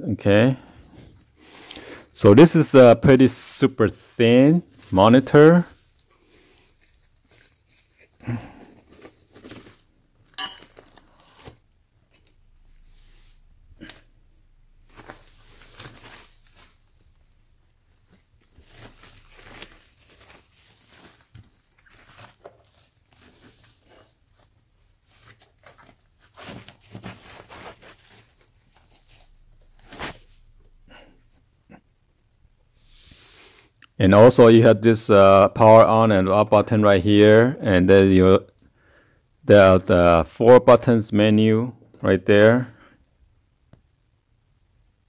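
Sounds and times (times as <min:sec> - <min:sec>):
foam wrap rustling: 0:04.6 - 0:14.0, 0:14.7 - 0:31.3
sharp ringing clink: 0:10.4 - 0:10.7.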